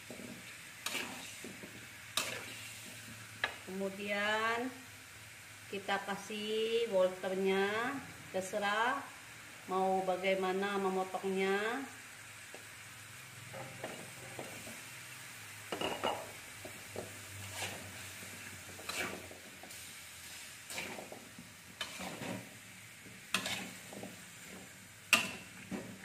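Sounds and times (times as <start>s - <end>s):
metal spatula scraping a wok: 0.0s - 3.0s, 17.1s - 22.6s, 23.2s - 25.6s
faint steady sizzle: 0.0s - 26.0s.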